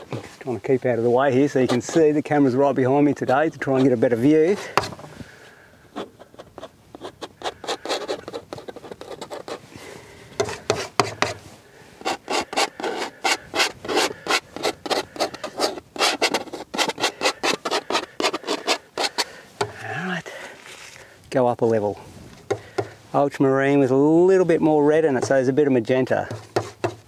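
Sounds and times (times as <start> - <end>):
palette knife scraping paint: 1.3 - 5.0, 5.9 - 9.6, 10.4 - 11.4, 12.0 - 19.8, 26.0 - 27.0.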